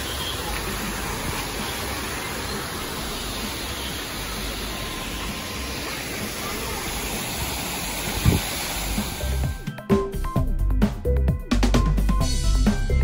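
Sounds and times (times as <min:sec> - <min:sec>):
water pouring and splashing into pools: 0:00.0 - 0:09.7.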